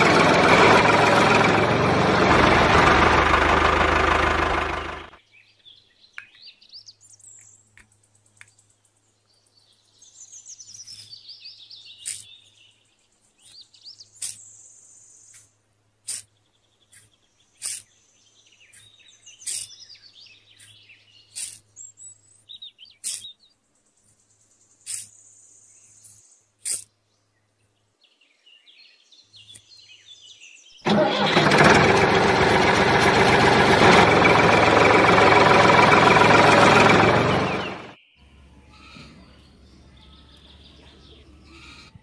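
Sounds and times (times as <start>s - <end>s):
loud steady motor: 0.0s - 5.2s, 30.9s - 38.0s
toy shovel scraping sand: 12.0s - 12.4s, 14.2s - 14.5s, 15.3s - 16.3s, 16.9s - 18.0s, 18.7s - 19.8s, 20.6s - 21.8s, 23.0s - 23.3s, 24.8s - 25.2s, 26.0s - 26.9s
birds chirping: 16.1s - 31.2s, 32.3s - 42.0s.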